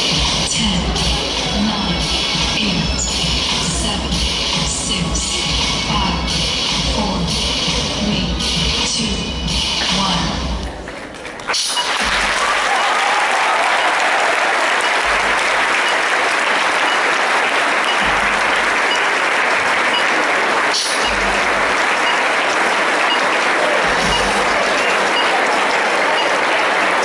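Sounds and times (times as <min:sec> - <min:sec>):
audience clapping: 0:10.6 - 0:27.0.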